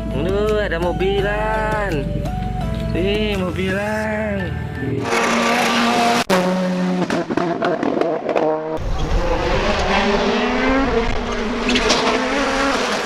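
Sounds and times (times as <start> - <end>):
rally car engine at high revs: 5.0 - 13.0.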